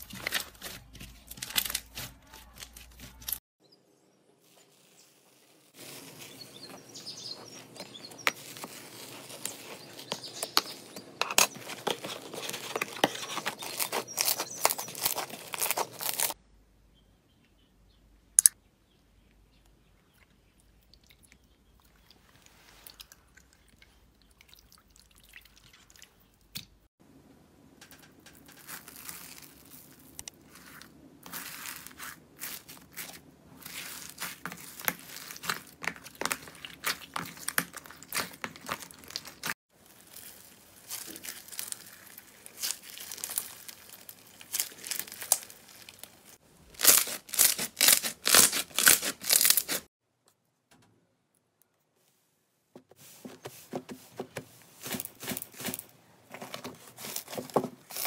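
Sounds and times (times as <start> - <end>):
slime squishing: 11.3 - 16.4, 28.5 - 49.9
loud crunches of beaded slime: 12.0 - 16.4, 28.5 - 49.9, 54.8 - 55.8
slime crackling and popping: 31.4 - 49.8.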